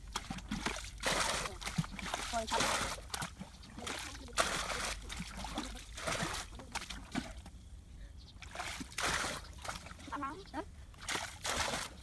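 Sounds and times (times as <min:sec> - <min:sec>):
muddy water sloshing: 0:00.0 - 0:12.0.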